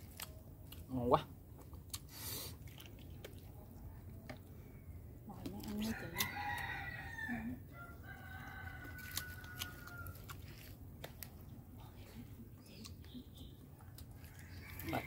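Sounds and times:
rooster crowing: 5.9 - 10.2.

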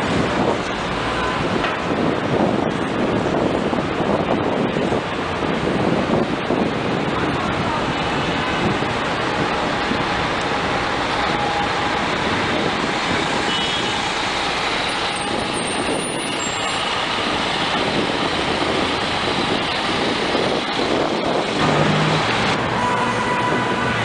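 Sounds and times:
city street traffic: 0.0 - 24.0
bus driving past: 8.0 - 24.0.

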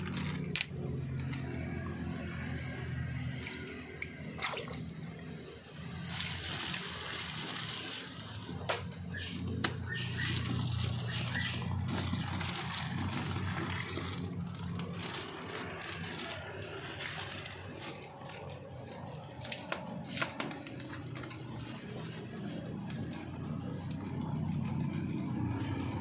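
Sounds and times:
plastic bags crinkling: 0.0 - 26.0.

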